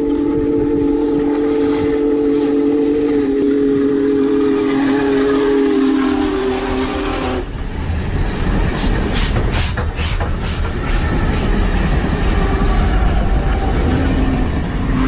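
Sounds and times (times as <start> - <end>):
steam locomotive chime whistle: 0.0 - 7.5
locomotive rumble: 0.0 - 15.0
steam hiss: 0.4 - 14.3.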